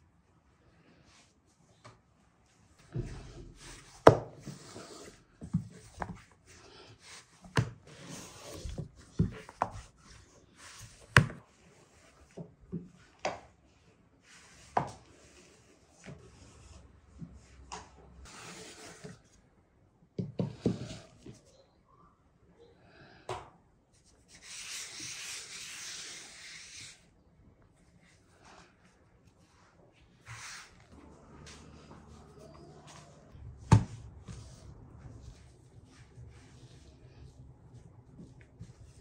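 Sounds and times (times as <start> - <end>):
rolling pin rubbing dough: 2.8 - 12.4.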